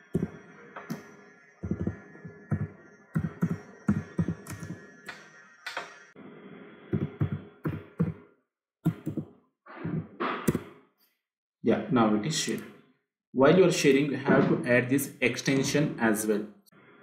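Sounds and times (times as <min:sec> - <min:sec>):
faint steady hum: 0:00.0 - 0:08.3.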